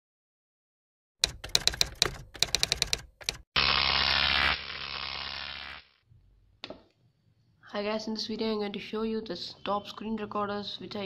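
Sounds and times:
typewriter keys clacking: 1.2s - 3.4s.

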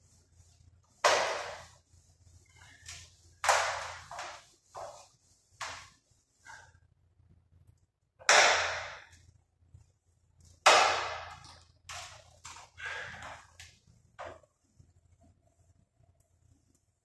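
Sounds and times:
hand sanding metal panel: 0.0s - 6.6s.

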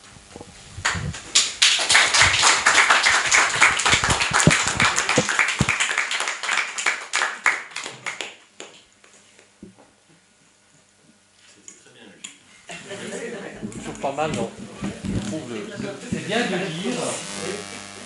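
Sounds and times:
small audience applauding: 0.8s - 8.8s
microphone thumping on table: 13.6s - 16.2s.

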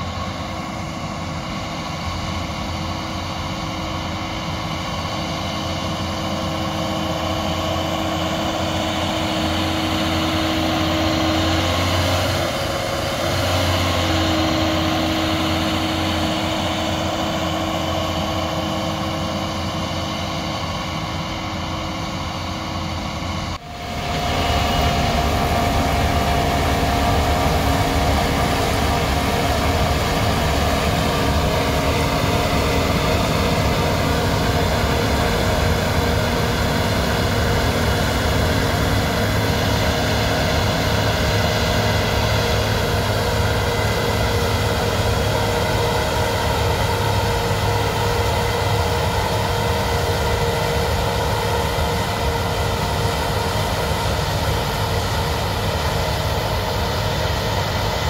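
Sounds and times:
diesel machinery running: 0.0s - 58.0s.

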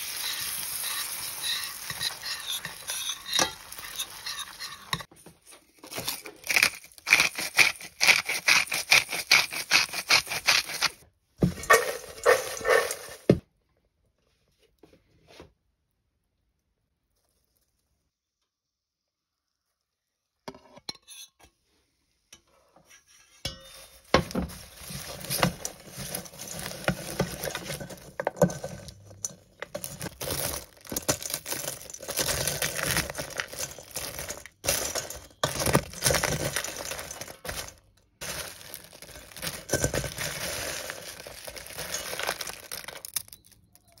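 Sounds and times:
spoon scraping metal bowl: 0.0s - 5.1s, 5.8s - 11.0s, 11.6s - 13.3s, 24.8s - 37.7s
popcorn rustling: 0.0s - 13.4s, 23.7s - 44.0s.

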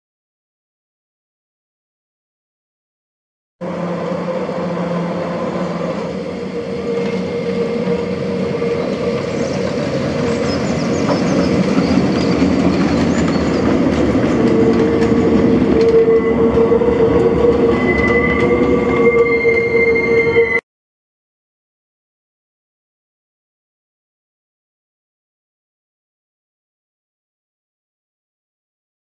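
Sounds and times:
high wheel squeal: 3.6s - 20.6s
tram wheels rumbling on rails: 3.6s - 20.6s.

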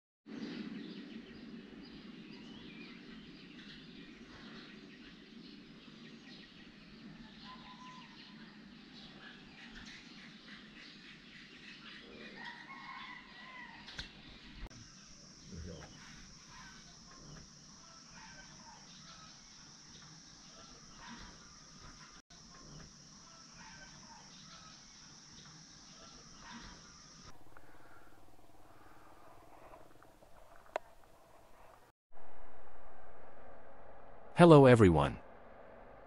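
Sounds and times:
birds chirping: 0.3s - 31.9s
chickens: 12.0s - 14.6s, 20.6s - 24.8s
high-pitched whine: 32.2s - 36.0s.

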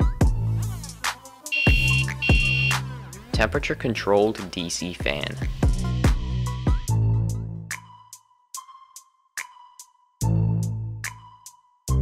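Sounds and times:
electronic music: 0.8s - 3.3s
thin held tone: 1.5s - 2.7s
bass note: 1.6s - 2.9s.

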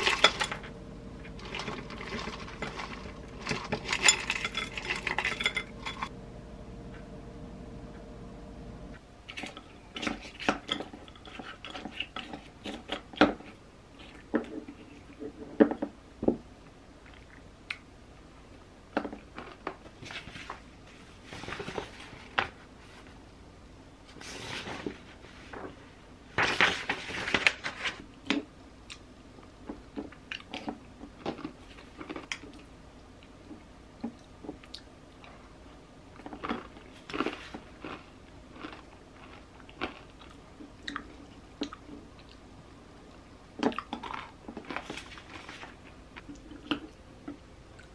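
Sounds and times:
paper rustling: 1.2s - 5.4s, 26.4s - 28.1s
chewing: 36.2s - 42.4s.

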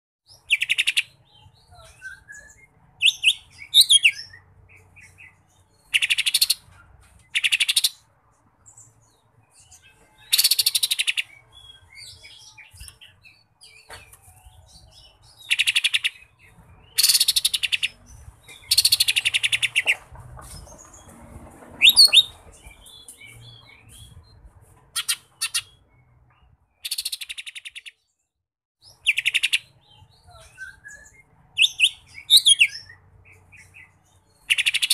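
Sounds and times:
bird singing trills and whistles: 0.3s - 6.7s, 9.6s - 20.0s, 21.8s - 24.4s, 26.8s - 28.0s, 28.8s - 34.9s.

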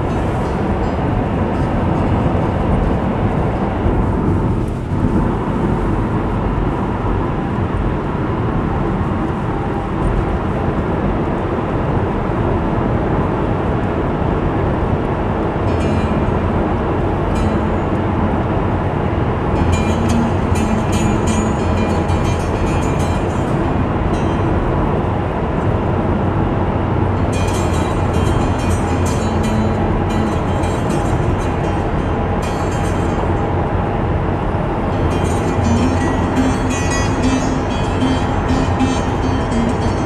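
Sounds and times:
car engine hum: 0.0s - 40.0s
road and tyre noise: 0.0s - 40.0s.

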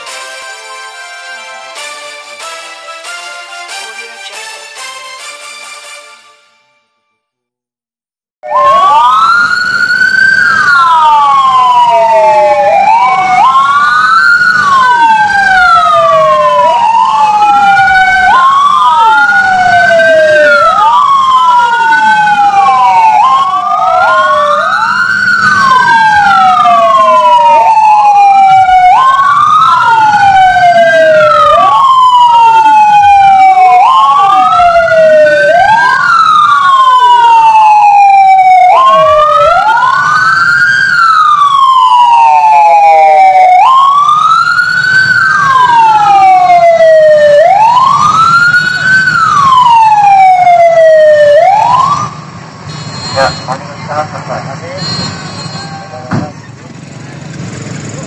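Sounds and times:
police sirens wailing: 8.4s - 58.0s.

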